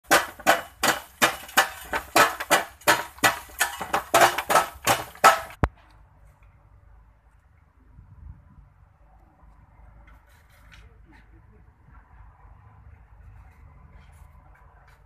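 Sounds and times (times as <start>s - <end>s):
hammers knocking on wire mesh: 0.0s - 5.7s.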